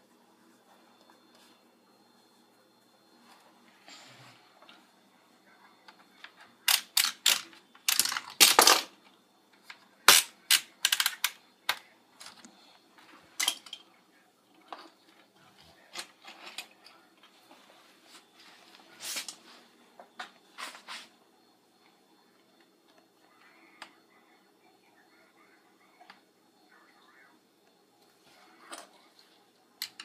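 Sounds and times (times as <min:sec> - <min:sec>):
plastic toy parts clicking: 0:06.6 - 0:08.9, 0:09.7 - 0:11.8.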